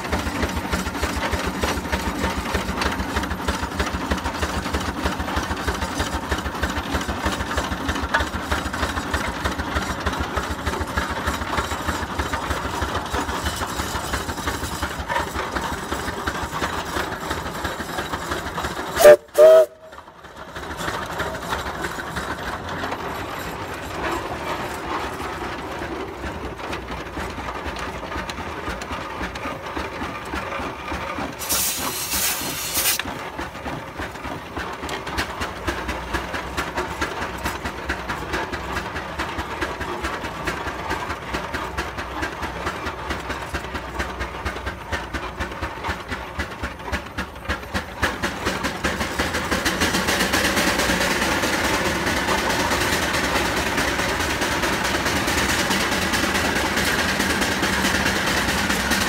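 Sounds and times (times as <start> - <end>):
steam traction engine running: 0.0 - 59.0
steam hissing: 13.2 - 20.0, 31.4 - 33.1, 47.4 - 59.0.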